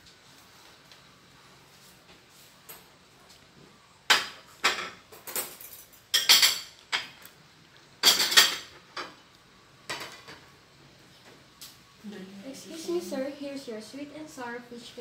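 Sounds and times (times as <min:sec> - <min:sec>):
dishes and cutlery clinking: 0:04.1 - 0:07.3, 0:08.0 - 0:09.2.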